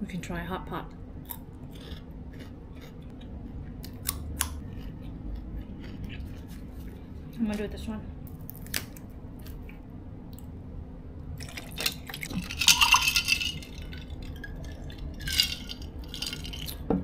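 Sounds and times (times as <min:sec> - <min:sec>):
drink pouring into glass: 0:11.5 - 0:16.8
glass clinking: 0:12.3 - 0:16.8.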